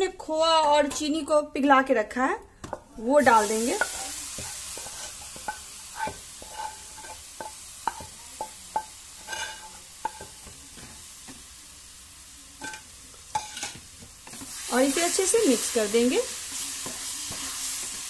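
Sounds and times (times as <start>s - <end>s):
coconut sizzling in fat: 3.0s - 18.0s
spatula scraping metal pan: 3.2s - 10.9s, 12.6s - 14.6s.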